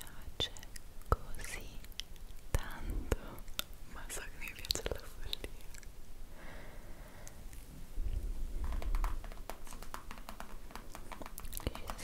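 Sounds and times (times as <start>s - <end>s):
light quick clicks and taps: 8.6s - 12.0s.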